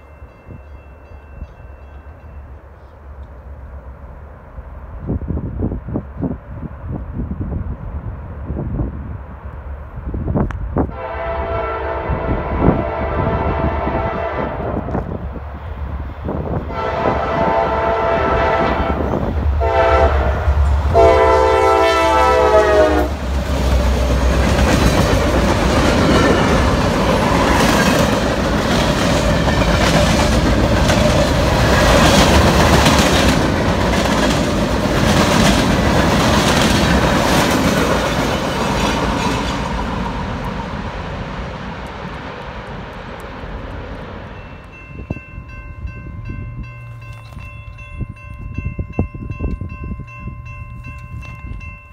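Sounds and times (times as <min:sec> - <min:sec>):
locomotive horn blasts: 0:10.9 - 0:15.0, 0:16.7 - 0:23.2
freight cars rumbling past: 0:11.9 - 0:47.1
wheels clacking over rail joints: 0:23.2 - 0:44.7.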